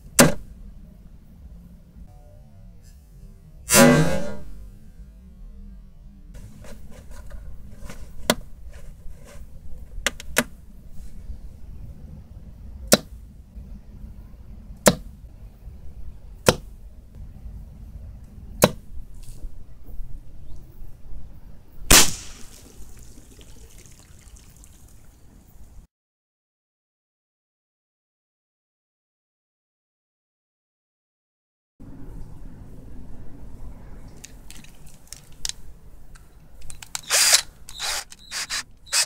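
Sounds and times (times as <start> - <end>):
crossbow shooting clicks: 21.9 - 22.7, 36.6 - 39.0.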